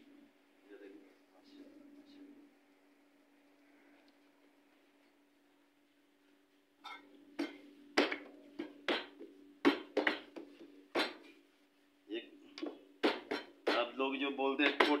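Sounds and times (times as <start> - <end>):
dough slapped on steel worktable: 7.4 - 11.3, 12.6 - 13.9.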